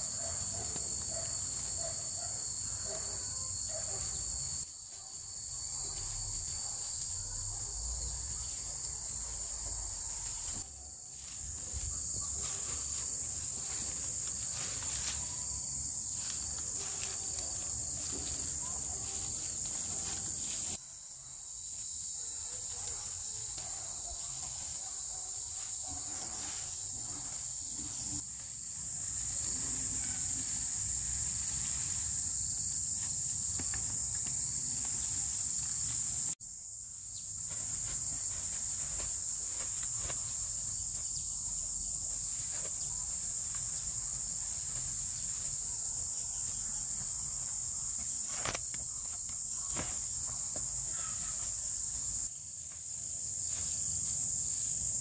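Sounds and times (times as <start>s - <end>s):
insect chorus buzzing: 0.0s - 55.0s.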